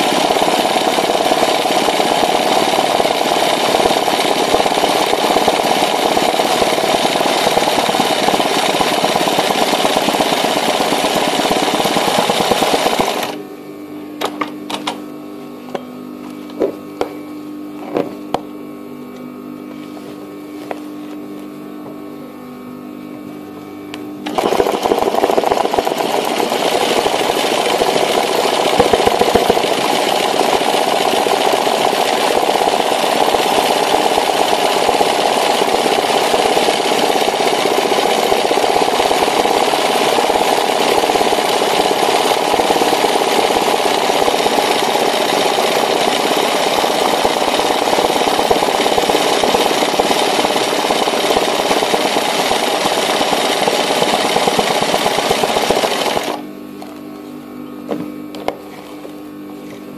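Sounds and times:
sewing machine running fast: 0:00.0 - 0:13.4, 0:24.2 - 0:56.4.

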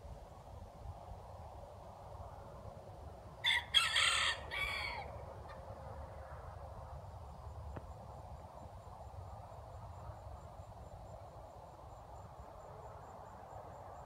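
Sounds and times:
rooster crowing: 0:03.4 - 0:05.2.

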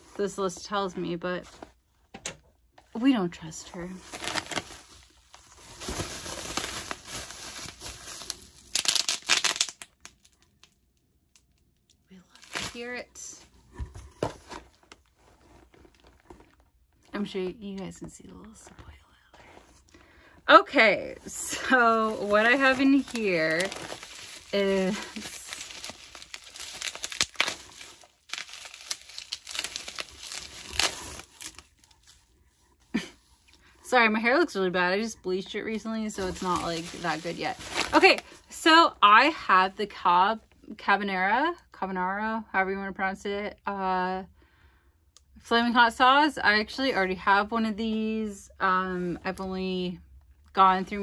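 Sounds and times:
bubble wrap crinkling: 0:03.0 - 0:17.0, 0:19.5 - 0:33.5, 0:36.1 - 0:38.8.

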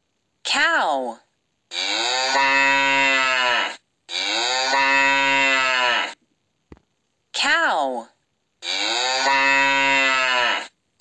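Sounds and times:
cow mooing: 0:01.7 - 0:06.2, 0:08.6 - 0:10.7.

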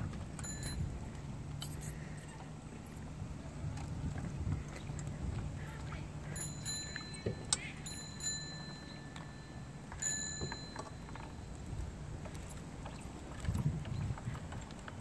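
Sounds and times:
thin high ringing tone: 0:00.4 - 0:02.4, 0:06.2 - 0:11.7
tricycle tyres rolling on asphalt: 0:10.0 - 0:15.0.

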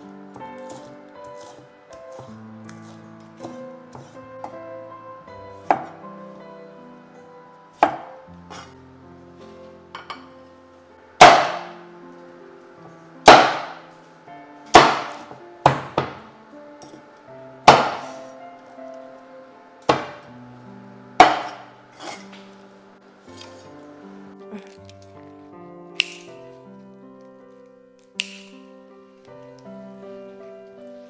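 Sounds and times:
background music: 0:00.0 - 0:31.0
cleaver chopping crab shells: 0:11.2 - 0:11.7, 0:13.3 - 0:13.8, 0:14.8 - 0:16.2, 0:17.7 - 0:18.2, 0:19.9 - 0:20.2, 0:21.2 - 0:21.6.

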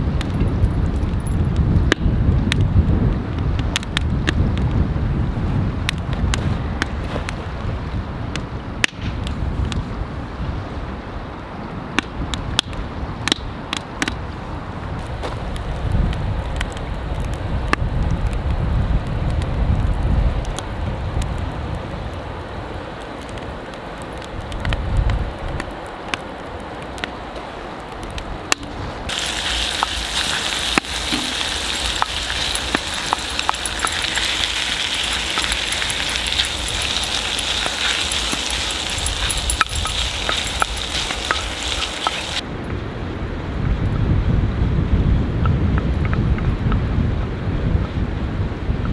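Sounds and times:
log fire crackling and popping: 0:00.0 - 0:04.9, 0:05.7 - 0:09.9, 0:15.0 - 0:42.4
meat sizzling in cast iron: 0:29.1 - 0:42.4.

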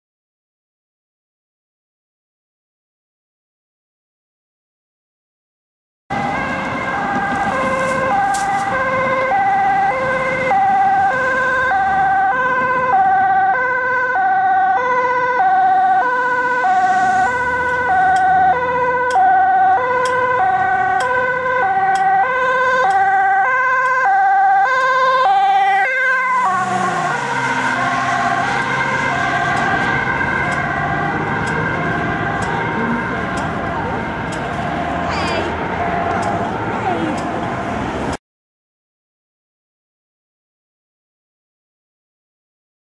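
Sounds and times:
two-tone ambulance siren: 0:06.1 - 0:38.2.

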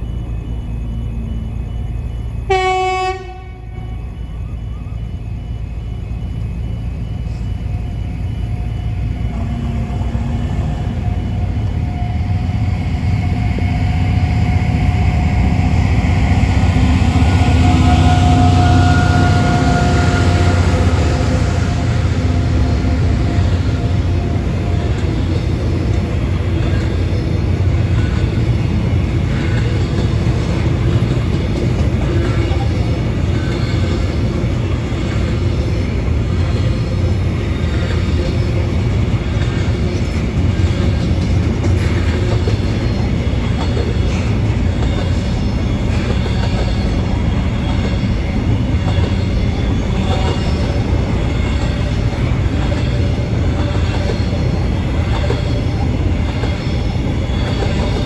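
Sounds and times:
diesel locomotive rumble: 0:00.0 - 0:58.0
train horn blast: 0:02.5 - 0:03.9, 0:17.2 - 0:21.7
high whine: 0:03.2 - 0:43.1.

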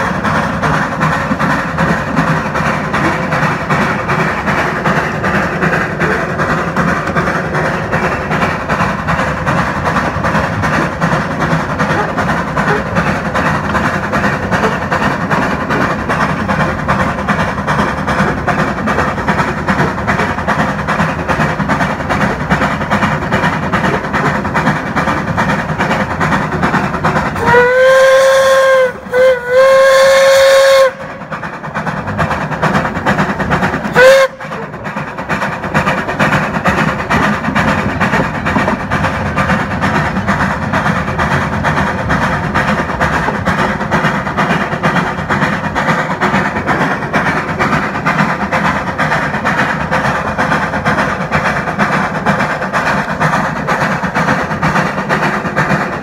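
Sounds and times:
locomotive exhaust chuffing: 0:00.0 - 0:56.0
wheels on rails: 0:00.0 - 0:56.0
steam whistle blasts: 0:27.4 - 0:31.1, 0:33.9 - 0:34.6.

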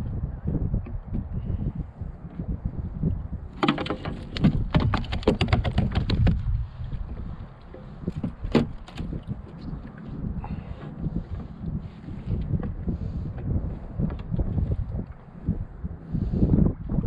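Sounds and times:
wind buffeting microphone: 0:00.0 - 0:17.0
gear knocking on plastic kayak: 0:03.5 - 0:11.4.

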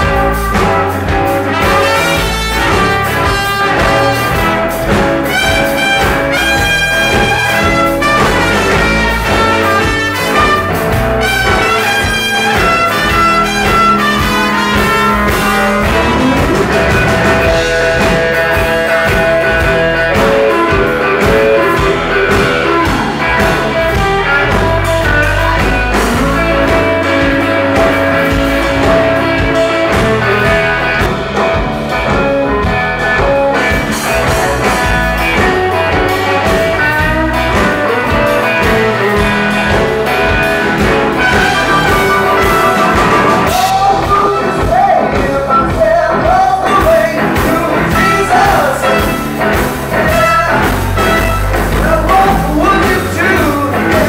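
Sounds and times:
bass guitar: 0:00.0 - 0:54.0
drum kit: 0:00.0 - 0:54.0
electric guitar: 0:00.0 - 0:54.0
person singing: 0:41.7 - 0:49.3, 0:49.9 - 0:54.0.

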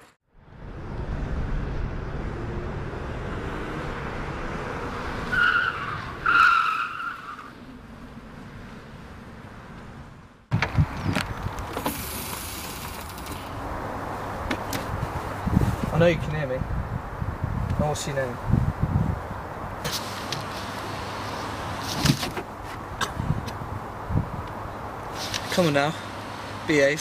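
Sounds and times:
tyres squealing: 0:05.3 - 0:07.6.

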